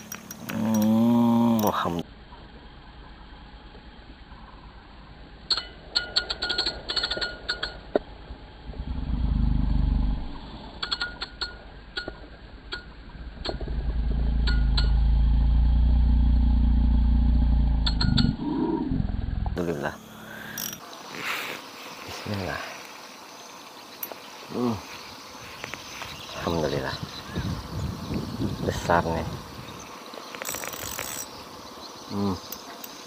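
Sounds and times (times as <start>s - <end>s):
low motor drone: 0.0s - 5.5s, 7.9s - 10.9s, 11.7s - 29.9s
fishing reel clicking: 20.4s - 20.8s, 30.4s - 31.3s.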